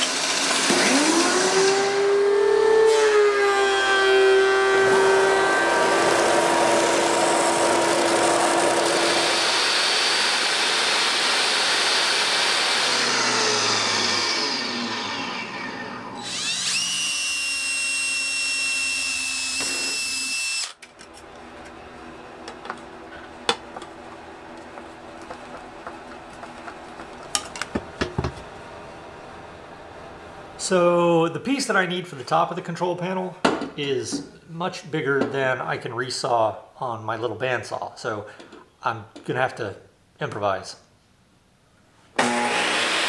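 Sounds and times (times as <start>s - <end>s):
power drill whining: 0.0s - 21.2s, 42.2s - 43.0s
belt sander running: 0.0s - 28.5s, 42.2s - 43.0s.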